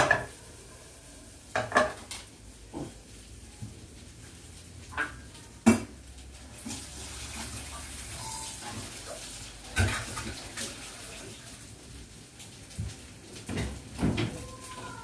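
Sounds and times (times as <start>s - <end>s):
dishes and utensils clattering: 0.0s - 0.4s, 1.5s - 3.0s.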